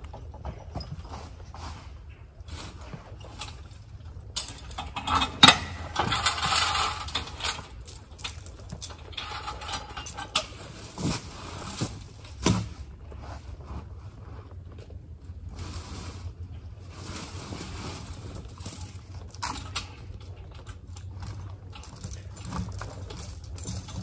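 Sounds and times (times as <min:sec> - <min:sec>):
metal chain clanking and creaking: 0:00.0 - 0:13.0, 0:17.9 - 0:24.0.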